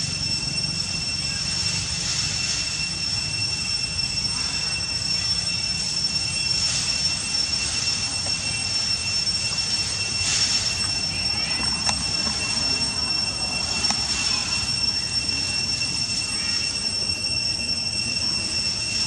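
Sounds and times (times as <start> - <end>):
high-pitched whine: 0.0 - 19.0.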